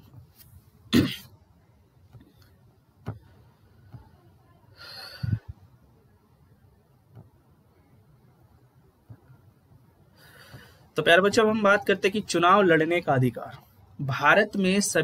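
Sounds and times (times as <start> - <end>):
soft low thump: 3.0 - 3.3
short breath: 4.8 - 5.5, 10.1 - 10.9.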